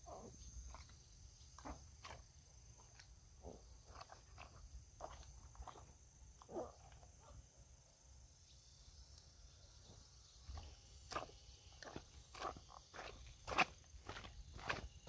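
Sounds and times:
high drone of insects: 0.0 - 15.0
soft footsteps on dirt path: 10.5 - 15.0.

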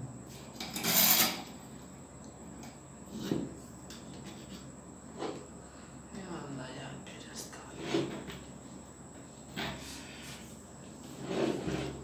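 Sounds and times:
scraping rub: 9.8 - 12.0
metal fork tube sliding: 11.2 - 12.0.

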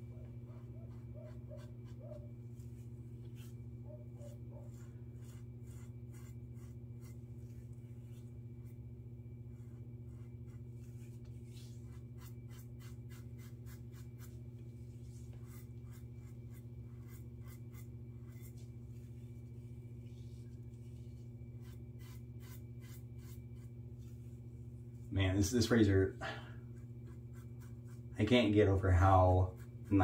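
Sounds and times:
low steady hum: 0.0 - 30.0
razor scraping stubble: 0.6 - 8.3, 9.6 - 14.4, 15.3 - 18.7, 21.1 - 23.8.

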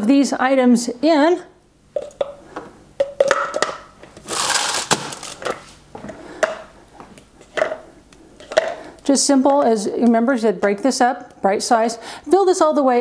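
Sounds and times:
crackling rustle: 4.2 - 5.9.

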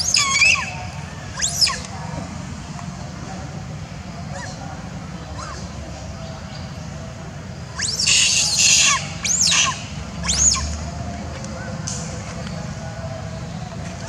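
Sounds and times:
monkey screaming: 0.0 - 1.9, 4.3 - 4.6, 5.3 - 5.7, 7.8 - 10.8.

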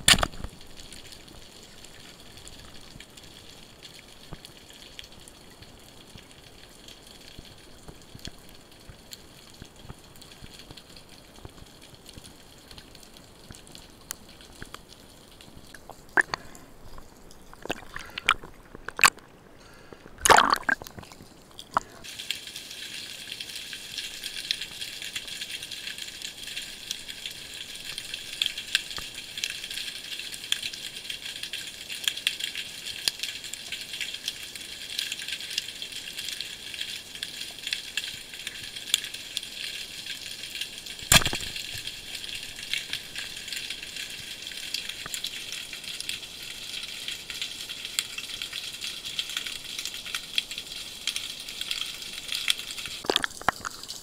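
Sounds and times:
snapping shrimp crackle: 0.0 - 0.6, 41.1 - 43.5, 53.0 - 54.0
water sloshing: 15.7 - 22.0, 53.0 - 54.0.

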